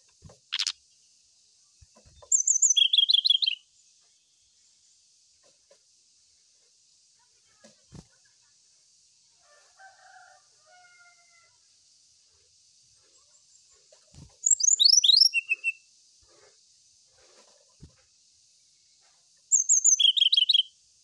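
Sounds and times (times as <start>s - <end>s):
bird singing whistles: 2.3s - 3.6s, 14.4s - 15.8s, 19.5s - 20.7s.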